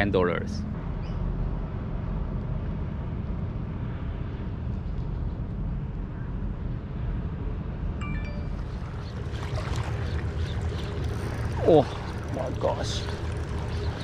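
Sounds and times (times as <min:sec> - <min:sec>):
low outdoor rumble: 0:00.0 - 0:14.0
high chirp: 0:08.0 - 0:09.3.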